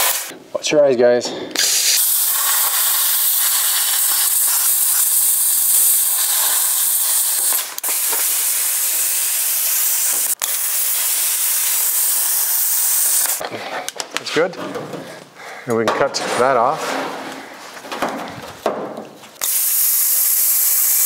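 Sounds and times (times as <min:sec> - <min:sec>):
plasma cutter hissing: 0:00.0 - 0:00.3, 0:01.6 - 0:13.4, 0:19.4 - 0:21.0.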